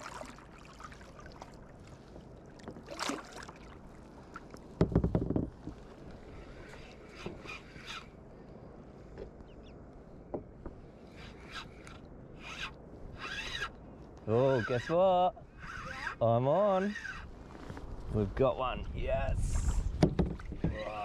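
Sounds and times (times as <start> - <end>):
water splash: 0.0 - 1.6, 2.8 - 3.8
water lapping against kayak: 0.0 - 21.0
knock on kayak hull: 4.8 - 5.6, 20.0 - 20.9.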